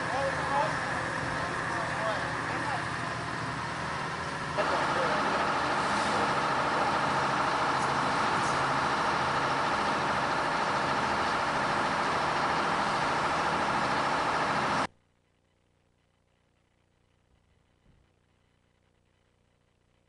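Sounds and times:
heavy engine droning: 0.0 - 14.9.

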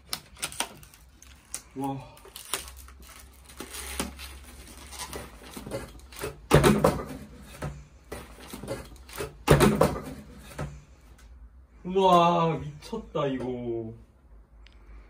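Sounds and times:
packaging rustling and scraping: 0.0 - 6.4.

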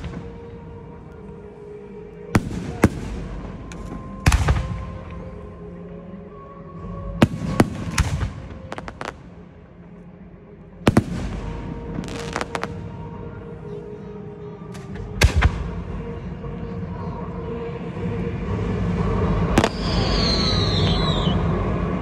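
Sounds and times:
firework crackling: 7.2 - 9.4, 10.9 - 13.0, 19.5 - 21.4.

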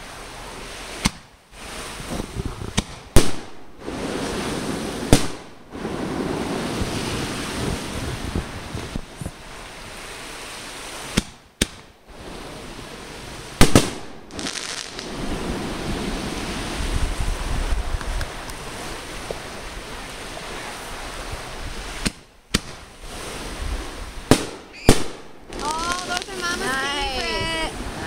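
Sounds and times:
wind on microphone: 0.0 - 11.2, 12.1 - 28.0
firework shooting up: 0.8 - 7.9, 13.5 - 19.5, 21.7 - 27.2
firework bangs: 0.8 - 9.4, 10.1 - 28.0.

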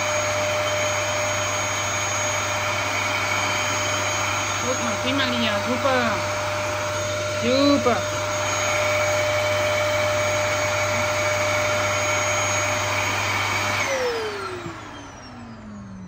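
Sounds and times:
vacuum cleaner running: 0.0 - 16.0.

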